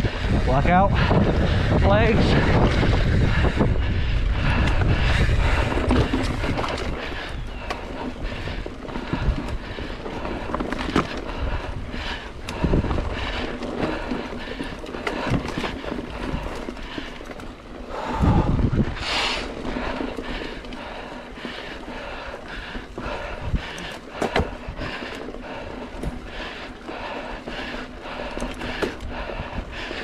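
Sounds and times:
mountain bike rattling on dirt trail: 0.0 - 30.0
wind buffeting microphone: 0.0 - 30.0.

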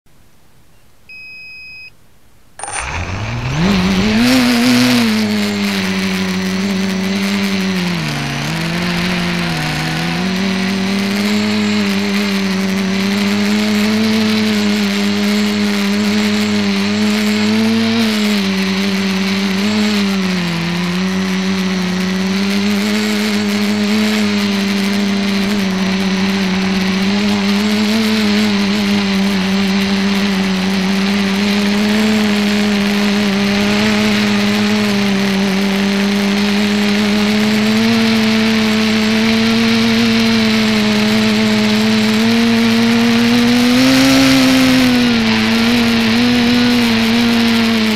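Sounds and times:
electronic beep: 0.8 - 2.0
drone motors whining: 2.6 - 47.9.

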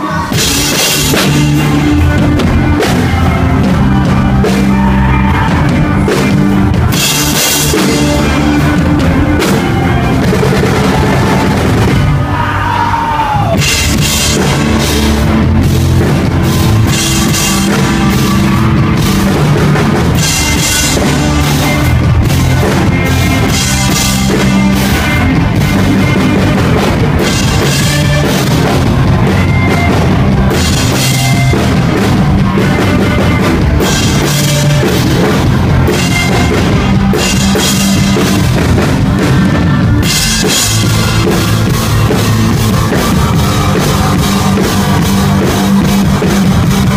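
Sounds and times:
drum kit beat: 0.0 - 46.9
rock band playing live: 0.0 - 46.9.

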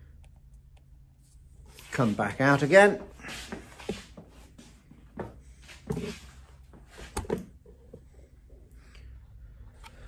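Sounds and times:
footsteps on wooden floorboards: 3.2 - 7.5.

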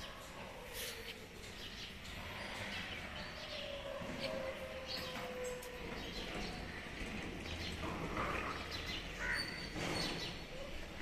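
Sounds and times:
birds chirping: 0.0 - 11.0
steady background noise: 0.0 - 11.0.

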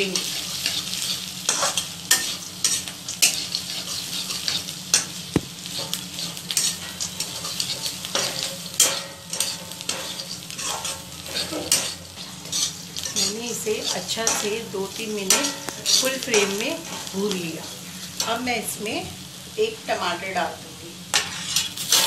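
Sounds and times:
frying sizzle in oil: 0.0 - 22.0
spatula scraping metal pan: 5.8 - 14.6, 21.1 - 22.0.

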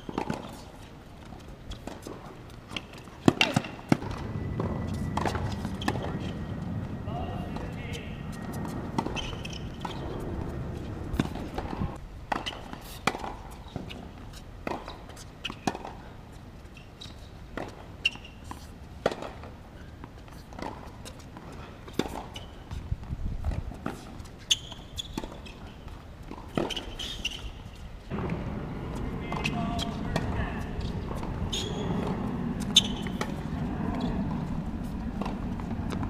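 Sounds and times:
footsteps on court: 0.0 - 36.0
tennis ball struck by racquets: 1.8 - 6.3
ball bouncing on hard court: 28.1 - 34.4.

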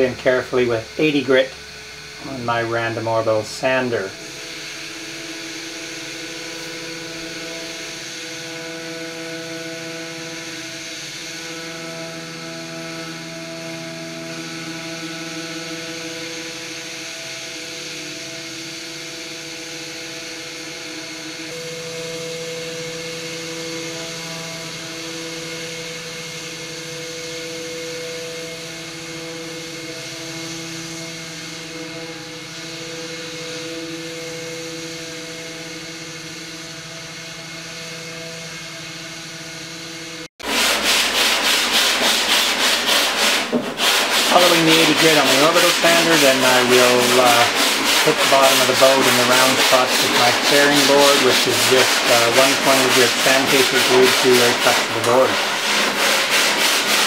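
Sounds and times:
orbital sander sanding wood: 0.0 - 57.0.

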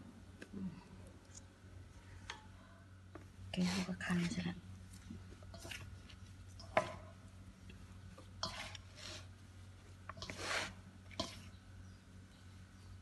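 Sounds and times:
hands kneading dough: 3.2 - 11.8.

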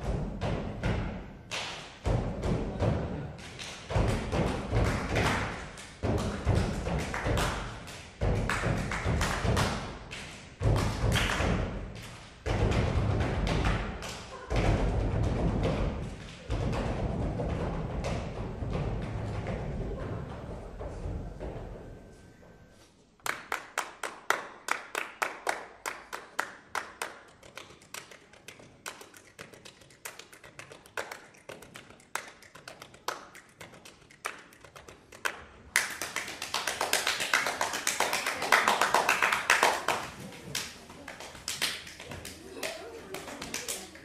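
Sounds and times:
hands clapping: 1.5 - 2.1, 3.4 - 12.4, 13.6 - 14.4, 23.2 - 44.0.

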